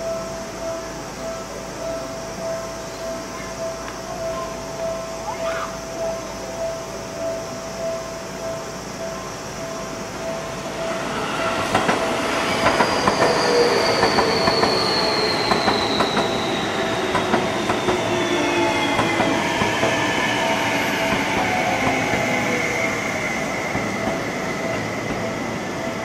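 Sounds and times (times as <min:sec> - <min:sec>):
train motor whine: 0:09.0 - 0:26.0
wheels clicking over rail joints: 0:10.1 - 0:22.7.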